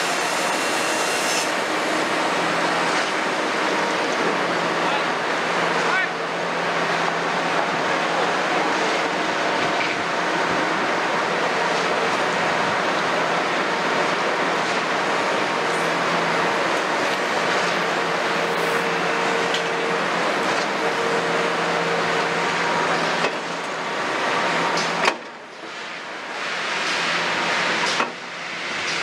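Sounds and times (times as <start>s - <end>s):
excavator diesel engine: 0.0s - 26.4s.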